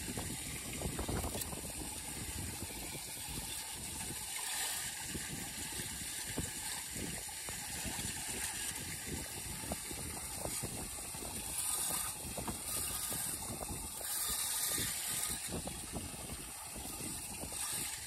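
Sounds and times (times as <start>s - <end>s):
water gurgling into drain: 0.0s - 18.0s
water splashing: 0.0s - 18.0s
rake scraping grate: 10.4s - 16.0s, 16.8s - 18.0s.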